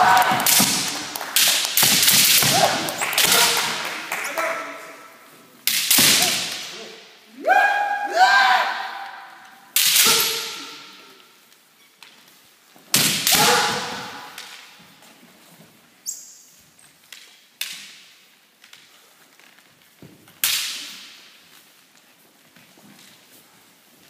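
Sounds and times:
high-pitched shout: 0:00.0 - 0:00.5, 0:07.3 - 0:09.4, 0:13.3 - 0:14.4
bamboo sword strikes cracking: 0:00.4 - 0:03.6, 0:05.6 - 0:06.8, 0:09.8 - 0:10.8, 0:13.0 - 0:14.7, 0:20.4 - 0:21.3.

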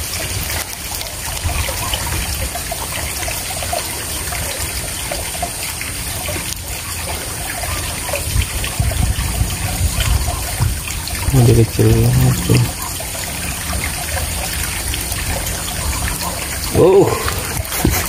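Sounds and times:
stream water trickling: 0:00.0 - 0:18.0
low rumbles: 0:07.2 - 0:17.7.

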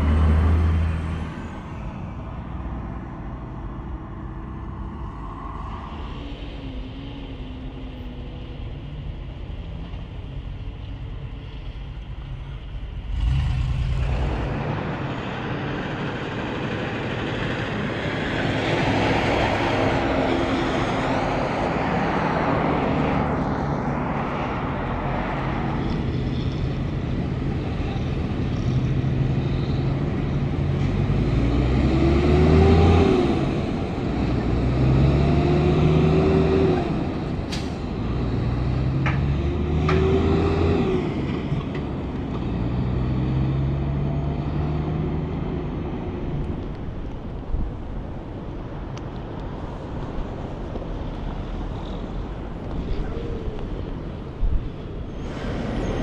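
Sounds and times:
truck engine revving: 0:00.0 - 0:01.6, 0:13.1 - 0:24.0, 0:24.8 - 0:46.6
road noise: 0:00.0 - 0:56.0
trucks passing on highway: 0:00.0 - 0:56.0.

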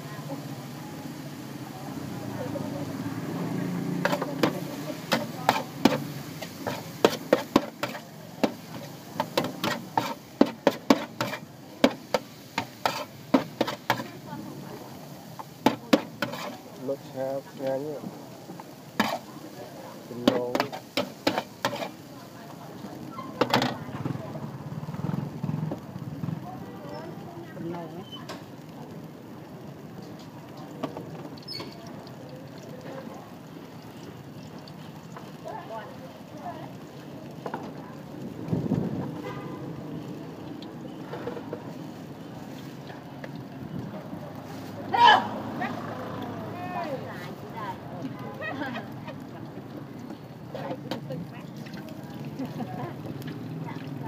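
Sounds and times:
liquid sizzling in a wok: 0:00.0 - 0:54.0
metal spatula scraping a griddle: 0:03.9 - 0:14.2, 0:15.6 - 0:17.1, 0:18.9 - 0:19.3, 0:20.1 - 0:22.0.

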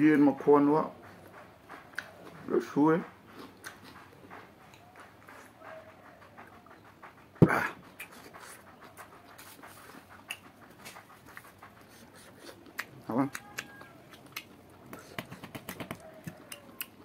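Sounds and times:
man panting: 0:07.4 - 0:08.7
mouth clicks: 0:07.4 - 0:17.0.

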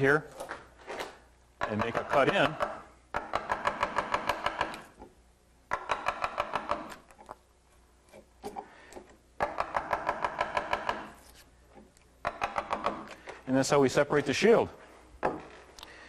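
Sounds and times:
mallet tapping gouge handle: 0:01.6 - 0:04.8, 0:05.7 - 0:07.0, 0:09.4 - 0:11.2, 0:12.2 - 0:13.1.

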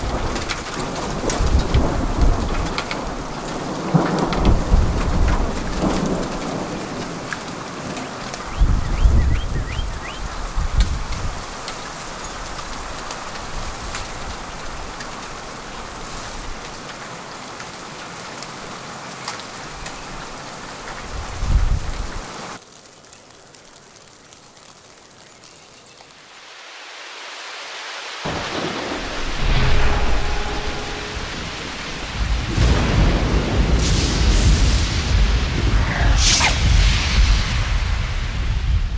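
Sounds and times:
thunder rumbling: 0:00.0 - 0:11.2, 0:28.3 - 0:38.9
sleet and snow pattering: 0:09.6 - 0:36.1.

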